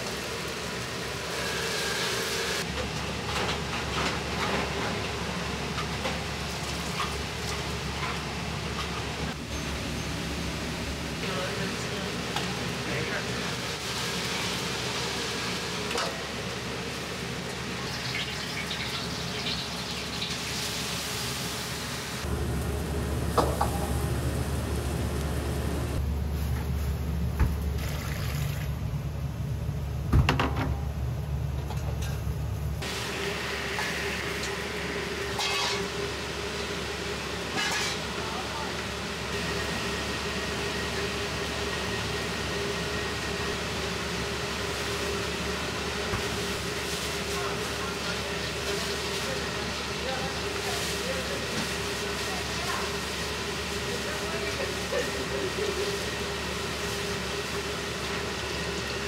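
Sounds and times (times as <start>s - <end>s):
kitchen ventilation hum: 0.0s - 59.0s
gas burner rushing: 9.3s - 26.0s.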